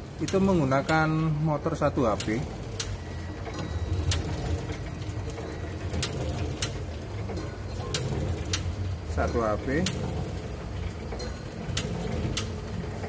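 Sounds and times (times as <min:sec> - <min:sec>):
packaging machine humming: 0:00.0 - 0:13.0
sharp machine click: 0:02.1 - 0:10.1.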